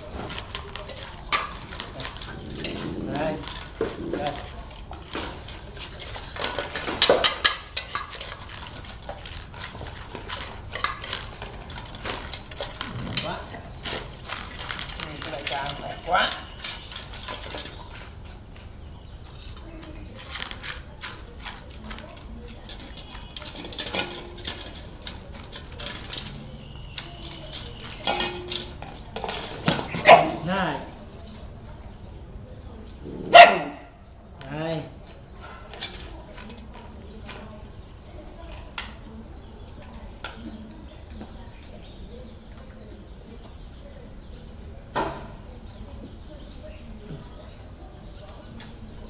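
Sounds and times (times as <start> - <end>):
metal dog bowls clattering: 0.0 - 18.6, 19.5 - 31.0
dogs chewing: 0.0 - 31.9.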